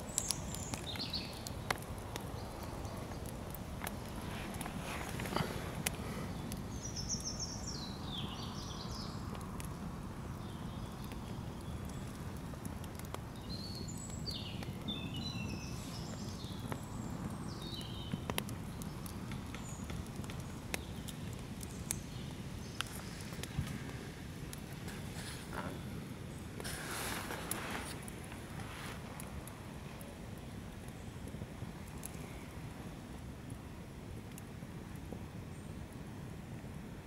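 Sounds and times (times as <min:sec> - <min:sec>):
songbird singing: 0:00.0 - 0:12.6, 0:13.2 - 0:28.6
campfire crackling and popping: 0:00.0 - 0:37.0.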